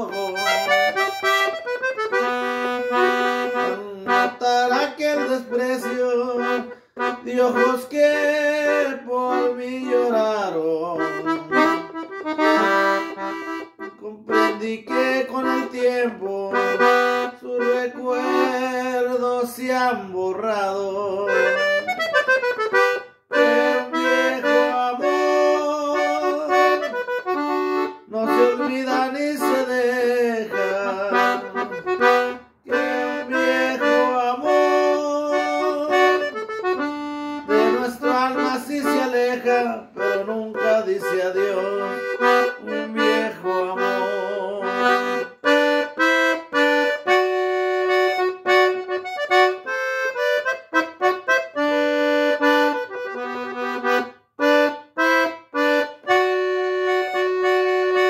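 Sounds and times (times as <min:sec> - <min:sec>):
accordion playing slow melody: 0:00.0 - 0:58.0.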